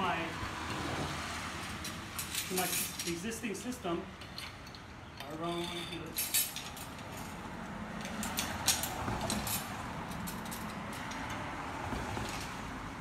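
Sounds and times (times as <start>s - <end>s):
metal carabiners clinking: 1.6s - 7.4s, 8.0s - 11.4s.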